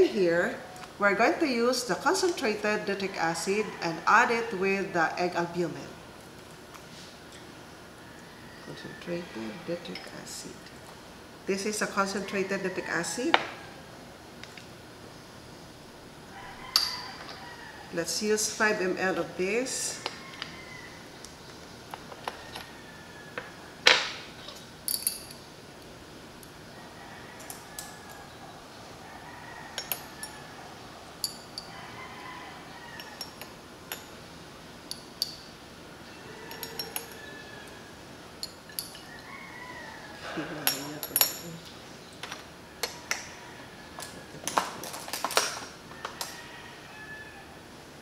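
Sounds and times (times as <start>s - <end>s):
glass test tubes clinking: 36.5s - 37.2s.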